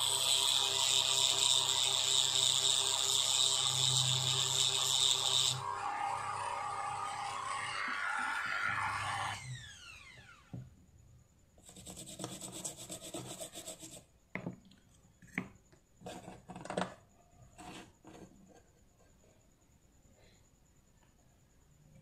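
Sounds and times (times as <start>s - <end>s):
electric drill whining: 0.0s - 10.7s
tool scraping circuit board: 0.1s - 5.7s, 11.6s - 14.0s.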